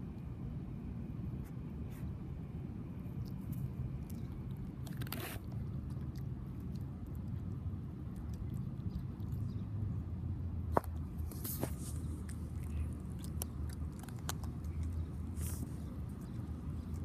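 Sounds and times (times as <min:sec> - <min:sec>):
steady low rumble: 0:00.0 - 0:17.0
cat crunching dry kibble: 0:03.1 - 0:09.5, 0:10.9 - 0:17.0.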